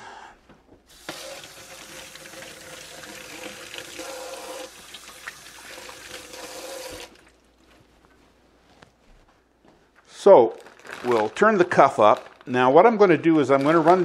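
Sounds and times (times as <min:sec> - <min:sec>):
faucet running: 0:00.9 - 0:07.5.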